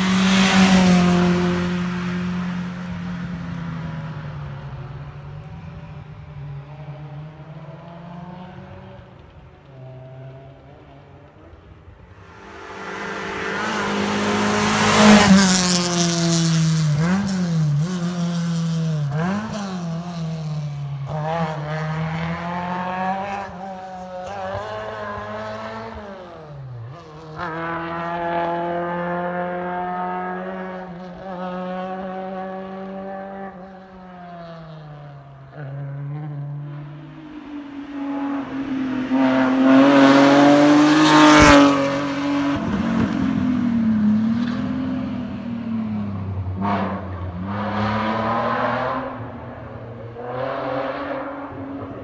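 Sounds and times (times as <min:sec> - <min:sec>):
rally car engine revving: 0:12.2 - 0:52.0.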